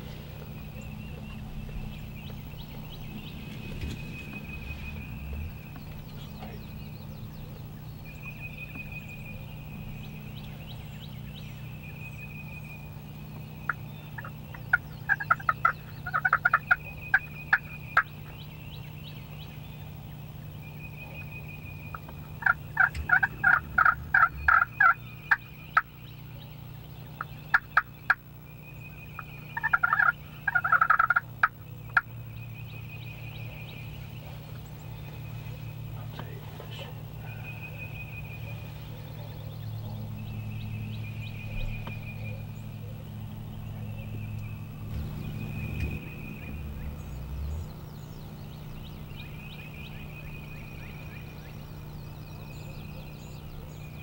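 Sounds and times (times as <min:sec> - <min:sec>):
turkeys gobbling: 0:13.7 - 0:18.3, 0:20.9 - 0:25.9, 0:27.1 - 0:28.2, 0:29.1 - 0:32.2, 0:44.3 - 0:47.4.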